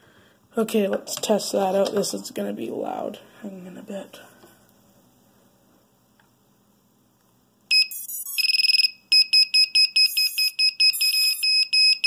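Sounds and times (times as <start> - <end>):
loud high-pitched buzzer beeps: 7.7 - 12.0.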